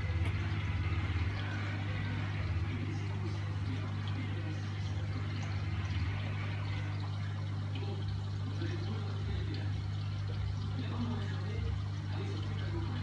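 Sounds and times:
aquarium pump hum: 0:00.0 - 0:13.0
circulating water hiss: 0:00.0 - 0:13.0.

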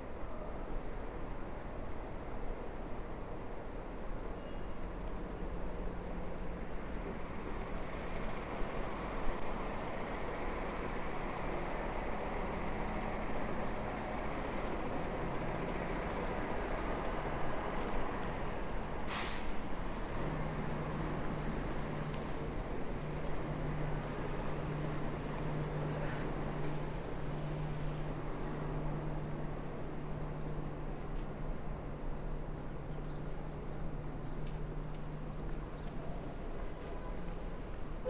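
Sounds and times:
city street traffic: 0:00.0 - 0:38.0
air brake hiss: 0:19.0 - 0:19.7.

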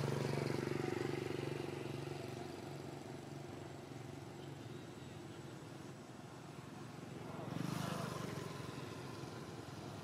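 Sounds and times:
vehicle engine humming: 0:00.0 - 0:05.4.

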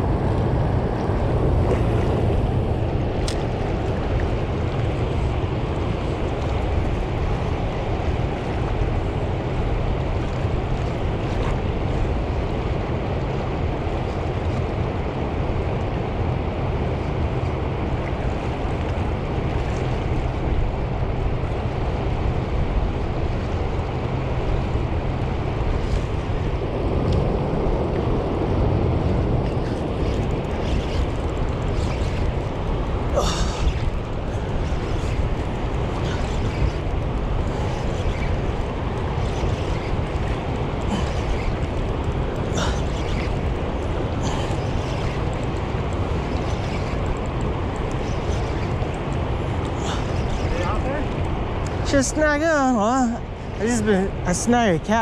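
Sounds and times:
wind buffeting microphone: 0:00.0 - 0:55.0
water rushing through floodgates: 0:26.2 - 0:55.0.

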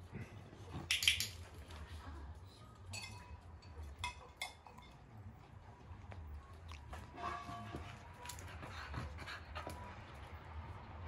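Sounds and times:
metal bowl clinking on concrete: 0:02.8 - 0:05.0.

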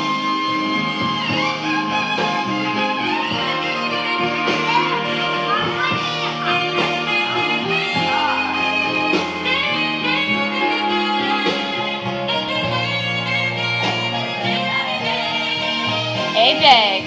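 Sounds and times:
jazz band music: 0:00.0 - 0:17.0
saxophone solo: 0:00.0 - 0:17.0
steady bass line: 0:00.0 - 0:17.0.

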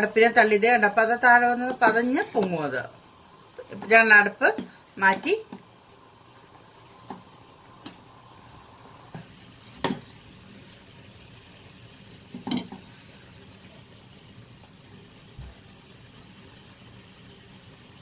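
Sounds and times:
boiling water fizzing: 0:00.0 - 0:18.0
metal spatula clinking against pot: 0:12.4 - 0:12.8.

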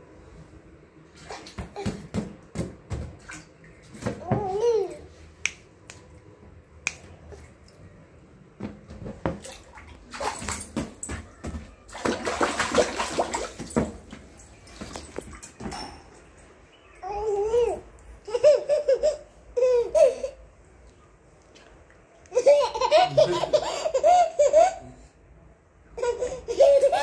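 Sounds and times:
water splashing in paddling pool: 0:09.3 - 0:15.6.

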